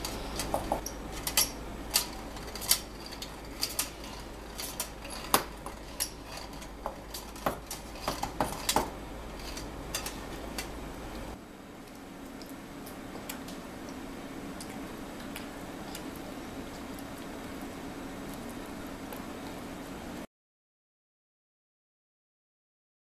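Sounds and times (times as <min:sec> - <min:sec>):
flour sifter clicking and rattling: 0:00.0 - 0:10.8.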